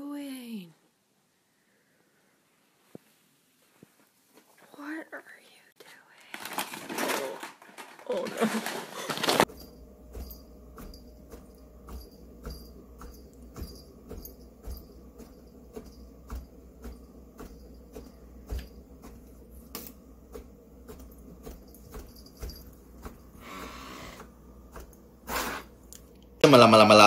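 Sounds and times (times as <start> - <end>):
inkjet printer printing: 8.3 - 25.8.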